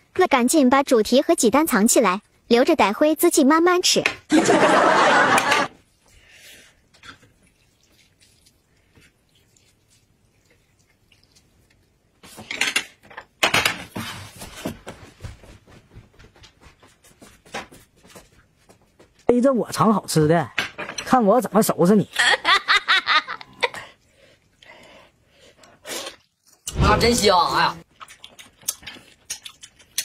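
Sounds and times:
chopsticks and plate on metal bowl: 0:06.9 - 0:11.5, 0:12.2 - 0:13.7.

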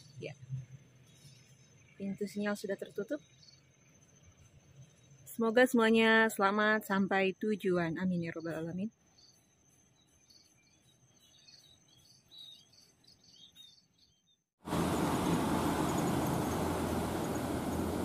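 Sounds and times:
faint birds chirping: 0:00.0 - 0:07.0, 0:07.8 - 0:18.0
loud steady rushing noise: 0:14.7 - 0:18.0.

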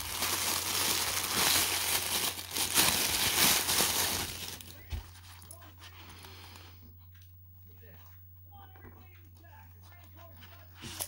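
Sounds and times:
plastic bag crinkling: 0:00.0 - 0:05.0.

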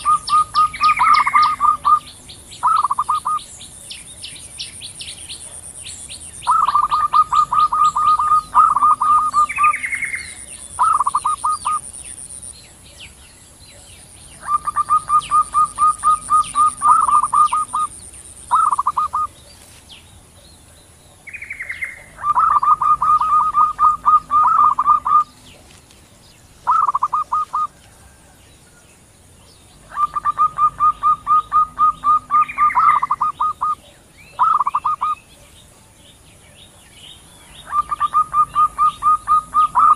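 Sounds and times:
doves cooing: 0:00.0 - 0:03.5, 0:06.4 - 0:11.9, 0:14.4 - 0:19.4, 0:21.6 - 0:28.8, 0:29.6 - 0:35.3, 0:37.5 - 0:39.9.

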